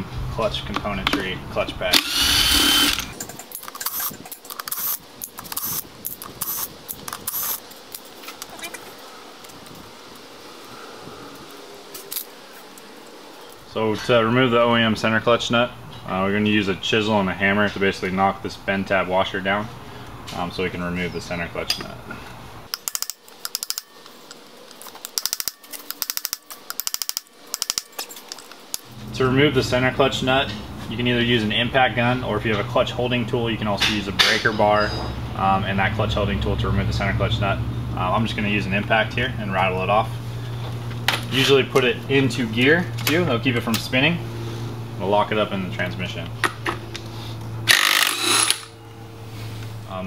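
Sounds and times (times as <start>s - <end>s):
cordless drill whirring: 2.0s - 3.1s, 3.8s - 5.8s, 6.4s - 7.6s, 47.7s - 48.7s
metal parts clinking: 22.7s - 28.9s, 47.7s - 48.7s
metallic hand tool clicks: 25.0s - 28.4s.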